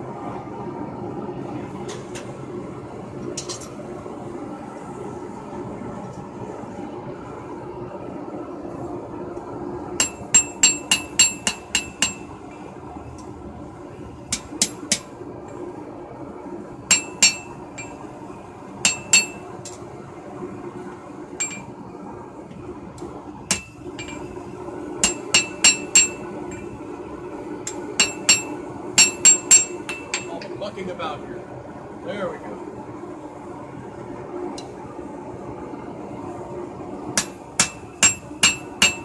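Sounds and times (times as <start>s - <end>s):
hammer ringing on anvil: 10.0s - 12.3s, 16.9s - 18.0s, 18.8s - 19.4s, 25.0s - 26.2s, 28.0s - 30.4s, 37.2s - 39.0s.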